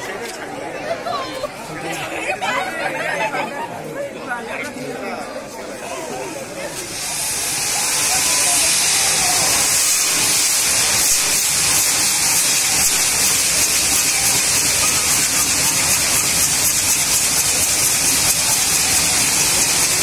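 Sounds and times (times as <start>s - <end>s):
firework wheel hissing and crackling: 5.7s - 20.0s.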